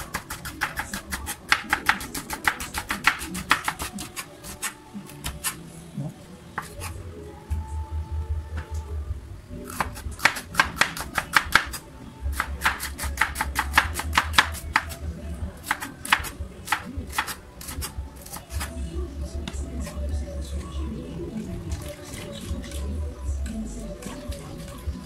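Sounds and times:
knife chopping on wooden board: 12.4s - 15.0s.

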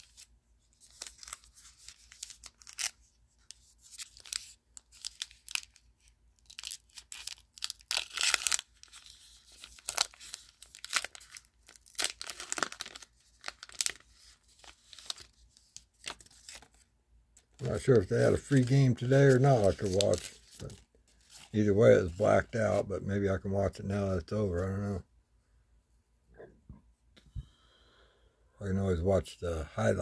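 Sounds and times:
wrapper tearing and crinkling: 0.0s - 16.8s, 17.4s - 22.6s.

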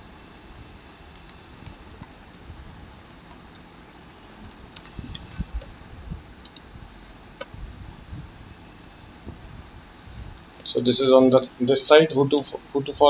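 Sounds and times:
keyboard keystrokes: 6.4s - 6.6s.

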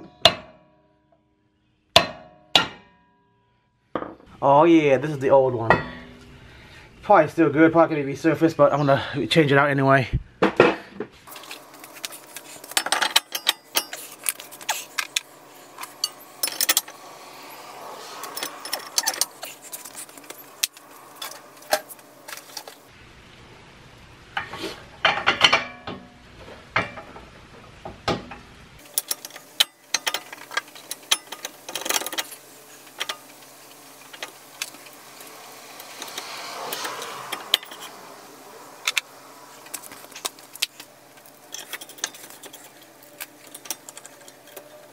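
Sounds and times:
metallic clinks and rattles of tools: 11.3s - 17.2s, 18.2s - 22.9s, 28.8s - 33.4s, 35.8s - 38.0s, 38.8s - 44.9s.

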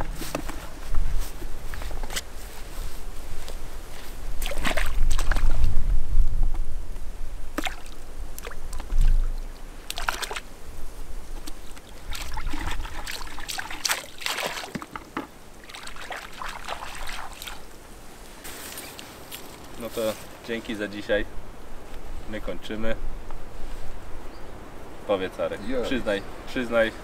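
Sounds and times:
water sloshing and trickling: 4.0s - 5.8s, 7.5s - 10.6s, 11.4s - 17.8s
water splashes: 4.4s - 5.8s, 7.5s - 10.7s, 11.4s - 17.8s
low rumble: 8.8s - 9.9s.

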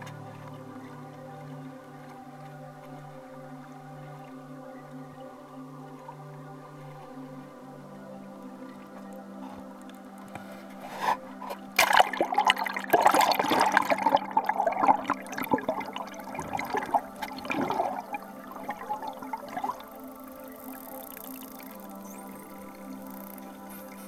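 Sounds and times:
muffled underwater churning: 0.0s - 24.0s
water splashing and gurgling: 5.8s - 24.0s.

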